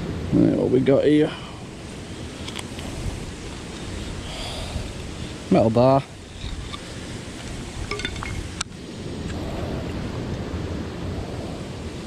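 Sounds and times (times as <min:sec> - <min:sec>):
rushing water: 0:00.0 - 0:12.0
wind on microphone: 0:00.0 - 0:12.0
light metallic clinks: 0:07.9 - 0:08.4.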